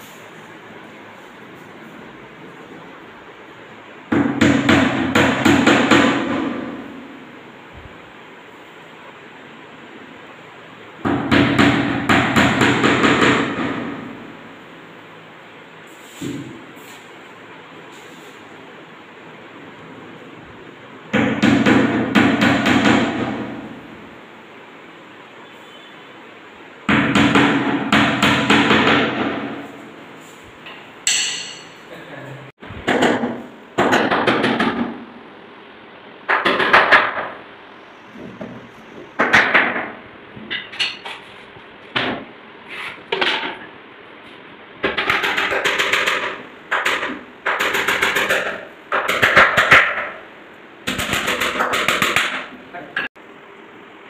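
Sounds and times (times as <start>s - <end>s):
hammer driving nails: 36.3s - 37.3s, 44.8s - 50.2s, 50.8s - 52.5s.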